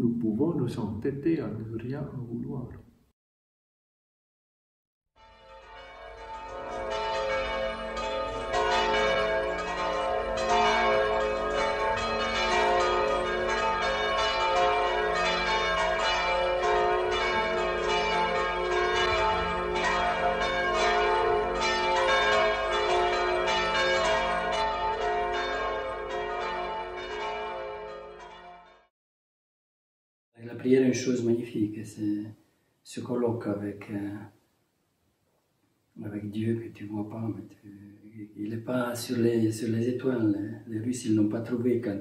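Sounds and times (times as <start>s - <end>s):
church bells ringing: 5.2s - 28.9s.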